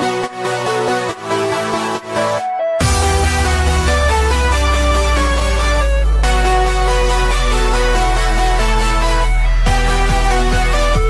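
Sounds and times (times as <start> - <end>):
held synth notes: 0.0 - 11.0
heavy steady bass: 2.8 - 11.0.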